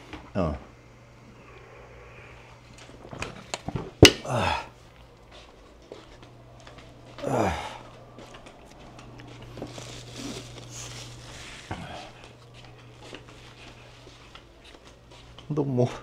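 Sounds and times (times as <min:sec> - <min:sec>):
steady low hum: 0:00.0 - 0:16.0
food packaging crinkling: 0:08.0 - 0:15.4.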